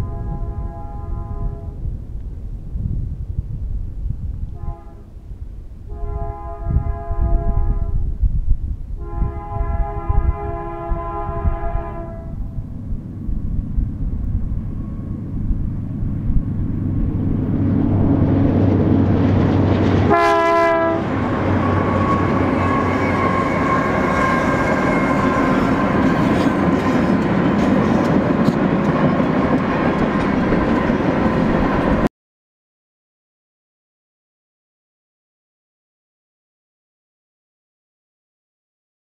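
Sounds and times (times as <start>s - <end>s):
train horn blast: 0.0s - 1.9s, 4.5s - 5.2s, 5.9s - 8.1s, 9.0s - 12.6s, 20.0s - 27.2s
diesel locomotives rumbling: 0.0s - 32.1s
steady whine: 11.4s - 20.2s.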